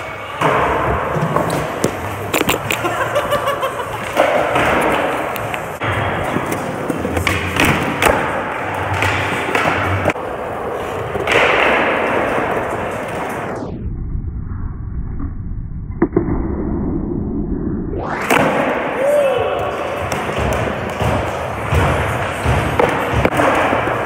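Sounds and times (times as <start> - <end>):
skateboard clacks and thuds: 20.0 - 24.0.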